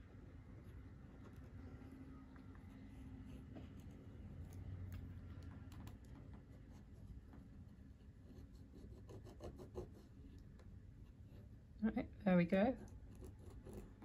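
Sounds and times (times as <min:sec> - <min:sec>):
pen scratching on card: 0:08.2 - 0:10.2, 0:12.8 - 0:14.0.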